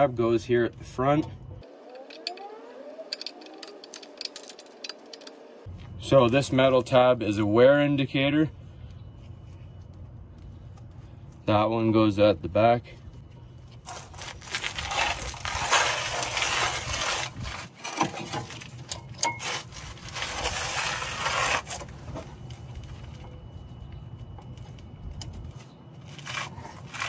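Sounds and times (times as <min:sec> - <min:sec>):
metal scraping and rubbing: 0:01.7 - 0:05.7, 0:13.7 - 0:23.1, 0:26.0 - 0:27.0
metal clicks: 0:01.9 - 0:05.4.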